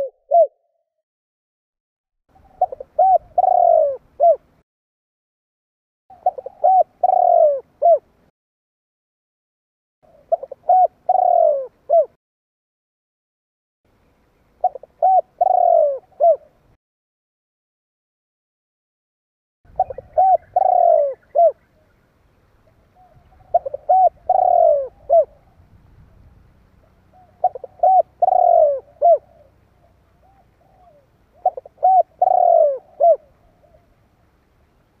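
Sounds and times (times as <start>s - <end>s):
dove cooing: 0.0s - 0.8s, 2.4s - 4.5s, 6.1s - 8.2s, 10.1s - 12.2s, 14.6s - 16.6s, 19.7s - 22.0s, 22.6s - 34.0s.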